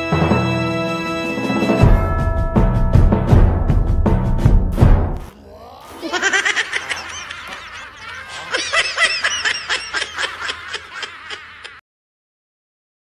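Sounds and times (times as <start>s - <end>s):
squeaky cartoon voices giggling: 5.9s - 11.8s.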